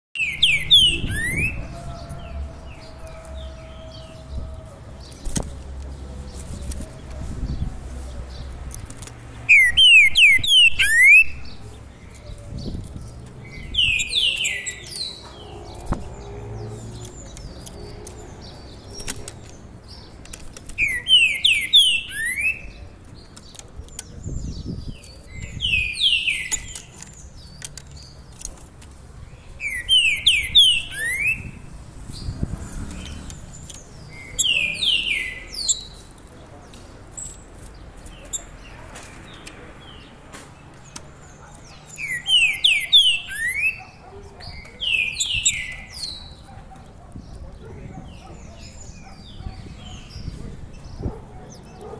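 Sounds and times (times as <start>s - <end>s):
songbird whistling phrases: 0.2s - 1.6s, 9.5s - 11.4s.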